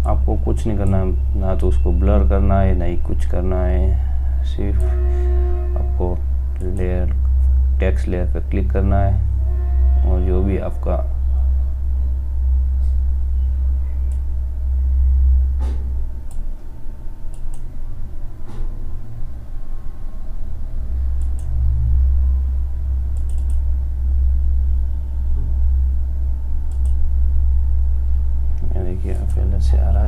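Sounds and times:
loud low hum: 0:00.0 - 0:30.0
computer mouse clicks: 0:17.3 - 0:17.7, 0:21.2 - 0:21.5, 0:23.2 - 0:23.6, 0:26.7 - 0:27.0.

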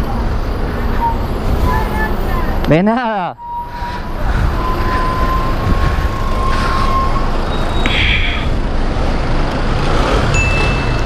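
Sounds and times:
engine rumble of idling traffic: 0:00.0 - 0:11.0
bus air hiss: 0:06.4 - 0:08.6.

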